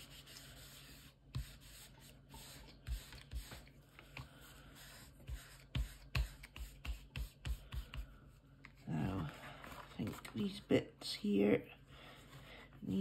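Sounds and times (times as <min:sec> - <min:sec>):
tissue rubbing on paper: 0:00.0 - 0:03.7, 0:04.4 - 0:08.0.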